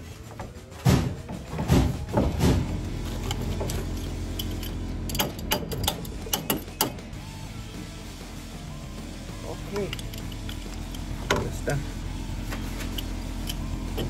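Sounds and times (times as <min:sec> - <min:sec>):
faint background music: 0:00.0 - 0:14.0
clicks of pipe fittings: 0:03.2 - 0:07.0, 0:09.7 - 0:11.5.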